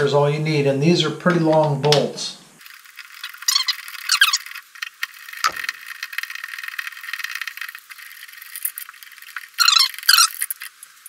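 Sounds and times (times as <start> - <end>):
metal squeaking and scraping: 3.2 - 4.6, 9.6 - 10.6.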